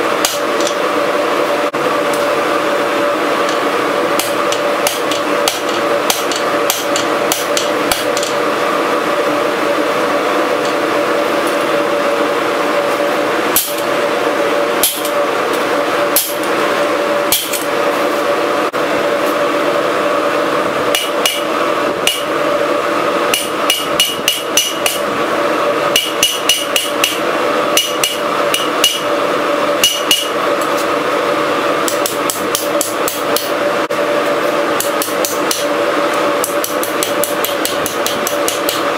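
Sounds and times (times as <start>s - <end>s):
steady hum: 0.0s - 38.9s
hammer striking steel on anvil: 0.2s - 0.8s, 4.2s - 8.4s, 13.6s - 13.9s, 14.8s - 15.2s, 16.1s - 16.5s, 17.3s - 17.7s, 20.9s - 22.3s, 23.3s - 25.0s, 25.9s - 27.2s, 27.8s - 29.1s, 29.8s - 30.4s, 31.9s - 33.6s, 34.8s - 35.7s, 36.4s - 38.9s.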